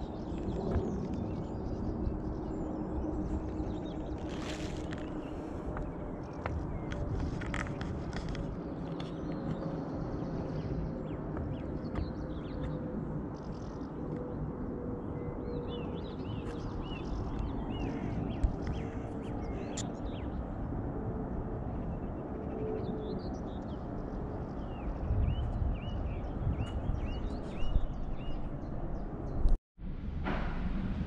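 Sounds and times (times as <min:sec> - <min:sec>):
small birds chirping: 0:00.0 - 0:20.5, 0:21.9 - 0:29.5
low outdoor rumble: 0:23.7 - 0:31.0.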